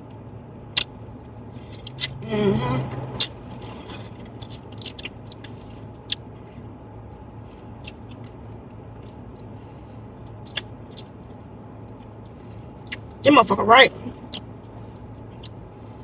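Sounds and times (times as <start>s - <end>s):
person chewing chicken wing: 0.7s - 2.2s, 3.2s - 6.6s, 7.5s - 9.5s, 10.2s - 13.2s, 14.2s - 16.0s
wet mouth clicks and smacks: 0.7s - 2.2s, 3.2s - 6.3s, 10.2s - 11.4s.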